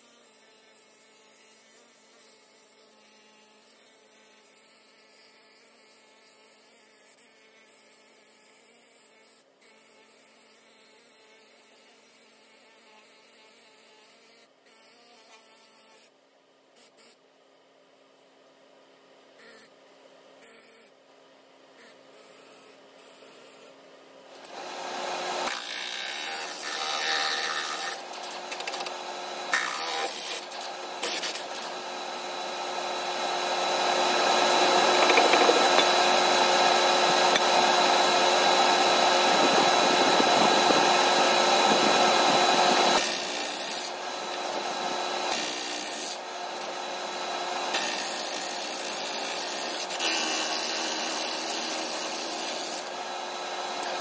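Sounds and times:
air tool scraping dirt off metal: 24.4 - 46.7, 47.6 - 54.0.

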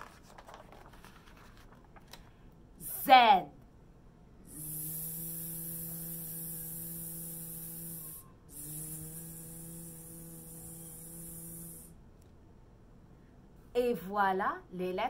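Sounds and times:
woman buzzing zzzz: 4.4 - 12.0.

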